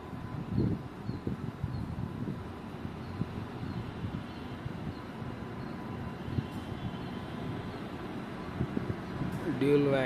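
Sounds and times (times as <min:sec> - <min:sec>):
wind buffeting microphone: 0:00.0 - 0:10.0
faint bird chirps: 0:00.5 - 0:02.0.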